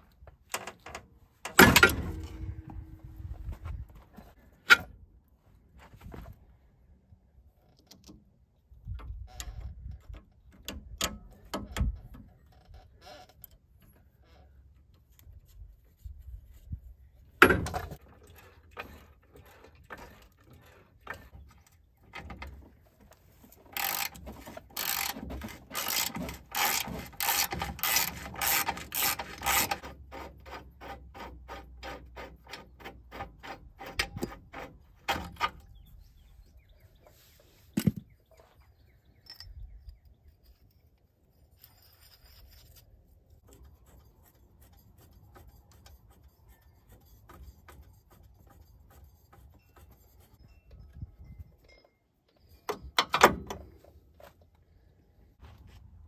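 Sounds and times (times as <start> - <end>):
ratchet wrench clicking: 23.8 - 24.2, 24.8 - 29.8.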